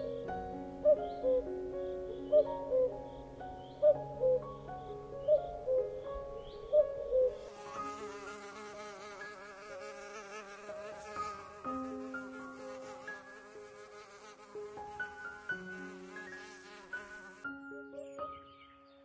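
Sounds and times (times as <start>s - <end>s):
cuckoo call: 0.0s - 7.5s
soft background music: 0.0s - 19.0s
fly buzzing: 5.7s - 17.6s.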